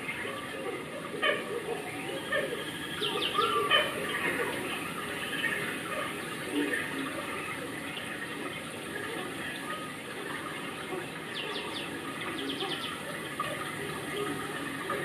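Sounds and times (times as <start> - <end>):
bird chirping: 2.0 - 6.7, 11.3 - 15.0
running water: 2.3 - 15.0.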